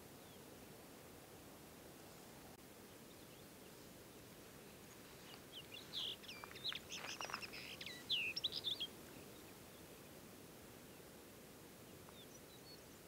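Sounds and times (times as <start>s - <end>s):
lark singing whistled notes: 4.7s - 9.8s.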